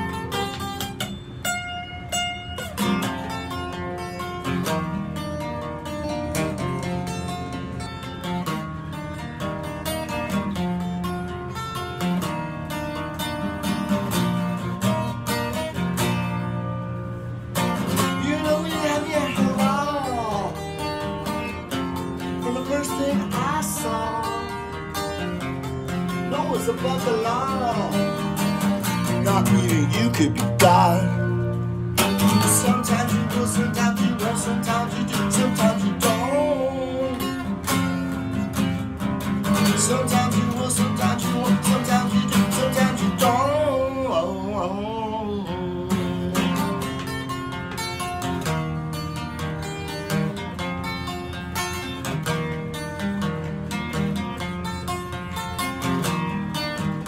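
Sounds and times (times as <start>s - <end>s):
acoustic guitar strumming: 0.0s - 57.0s
man singing: 17.9s - 20.9s, 22.4s - 24.7s, 26.1s - 31.5s, 32.2s - 37.5s, 39.6s - 47.2s.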